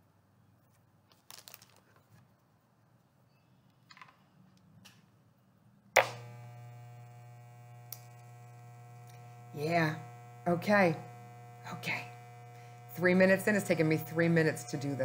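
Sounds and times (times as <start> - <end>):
hair clippers humming: 6.0 - 15.0.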